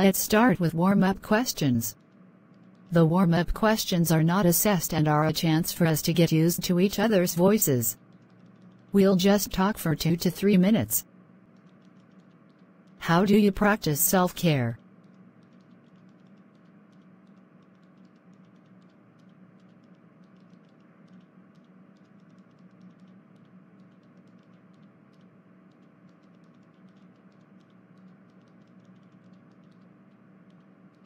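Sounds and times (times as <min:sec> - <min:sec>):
faint hum and hiss: 0:00.0 - 0:31.0
soft irregular clicks: 0:01.9 - 0:03.0, 0:07.9 - 0:09.4, 0:11.4 - 0:13.0, 0:14.8 - 0:31.0.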